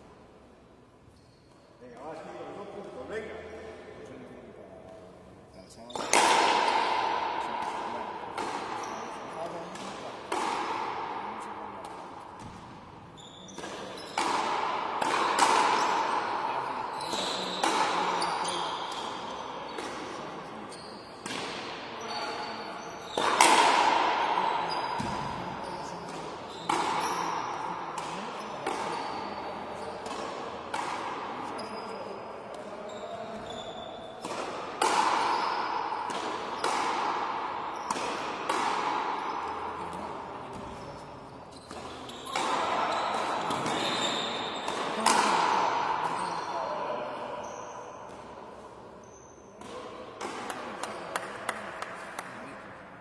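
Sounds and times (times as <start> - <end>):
ball hit by rackets echoing: 5.9 - 20.4, 21.2 - 22.4, 23.0 - 31.7, 34.1 - 40.9, 41.6 - 48.6, 49.6 - 52.3.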